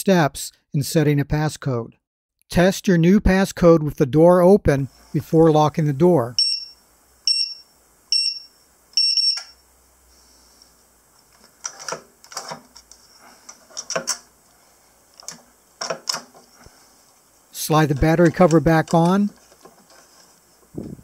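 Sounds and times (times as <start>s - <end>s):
safe keypad beeping: 6.4s - 9.6s.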